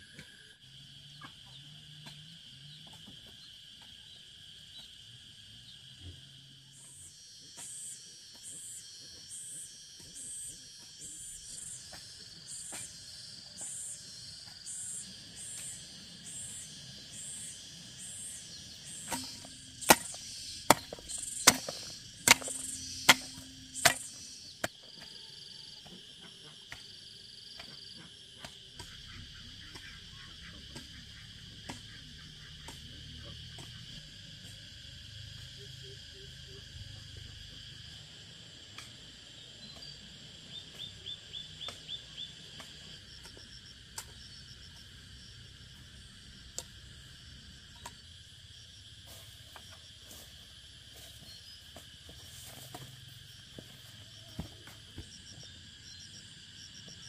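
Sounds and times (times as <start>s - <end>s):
insect chirring: 0.0s - 57.0s
sharp chopping strikes: 18.3s - 24.4s.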